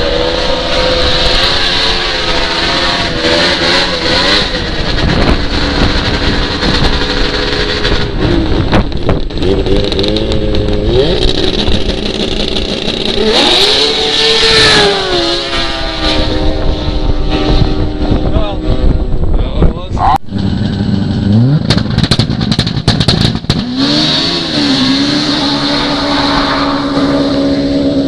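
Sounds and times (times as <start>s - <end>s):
snowmobile engines revving: 0.0s - 21.8s, 23.5s - 28.0s.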